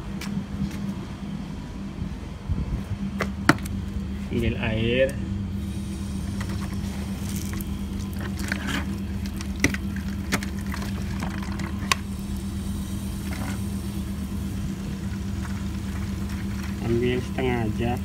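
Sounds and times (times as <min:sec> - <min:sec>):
low machine hum: 0:00.0 - 0:18.0
water sloshing in a container: 0:06.5 - 0:12.3, 0:15.0 - 0:17.4.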